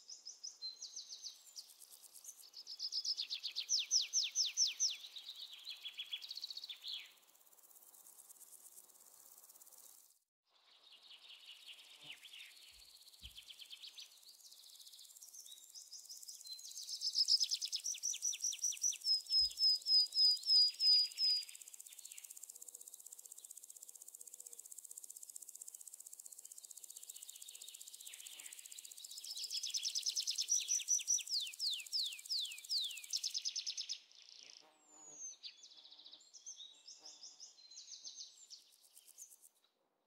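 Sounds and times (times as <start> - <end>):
high insect drone: 6.2 - 10.2, 21.0 - 33.8.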